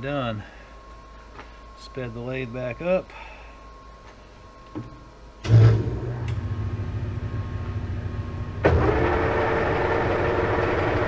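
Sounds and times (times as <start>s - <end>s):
lathe motor humming: 7.6s - 11.0s.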